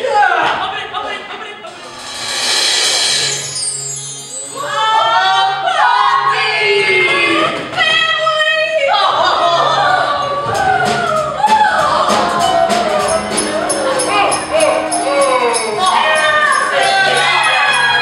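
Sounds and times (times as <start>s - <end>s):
backing music: 1.7s - 4.8s, 10.3s - 18.0s
voices singing: 8.8s - 18.0s.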